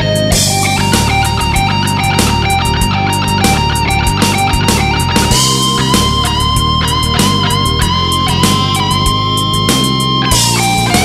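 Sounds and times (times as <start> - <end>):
electric guitar riff: 0.0 - 11.0.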